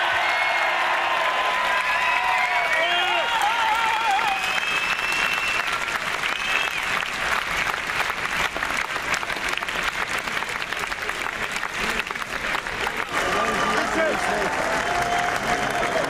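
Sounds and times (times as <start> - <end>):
crowd applauding: 0.0 - 16.0
crowd cheering: 0.0 - 16.0.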